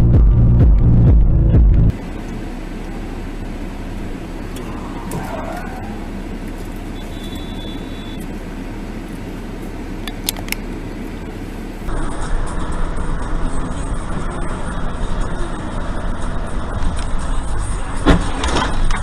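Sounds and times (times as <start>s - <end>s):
electronic music: 0.0s - 2.0s
car engine and traffic hum: 0.0s - 19.0s.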